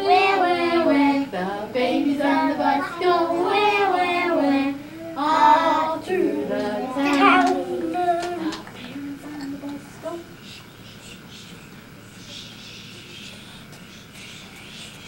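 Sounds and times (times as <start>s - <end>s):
toddlers singing: 0.0s - 9.7s
woman singing: 0.0s - 11.3s.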